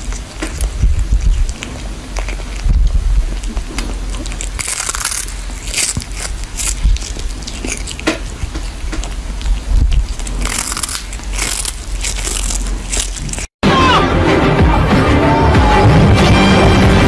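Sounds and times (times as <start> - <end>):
cat crunching on fish: 0.0 - 13.6.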